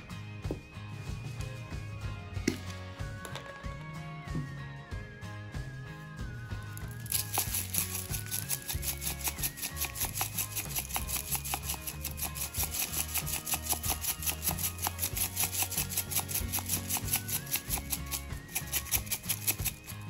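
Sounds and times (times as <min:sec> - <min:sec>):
background music: 0:00.0 - 0:20.0
pepper mill grinding: 0:06.6 - 0:20.0.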